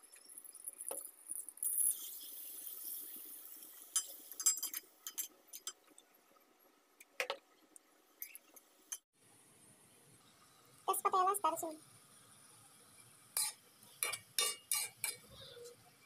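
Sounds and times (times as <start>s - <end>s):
onions sizzling in hot oil: 0.1s - 5.8s, 10.3s - 15.5s.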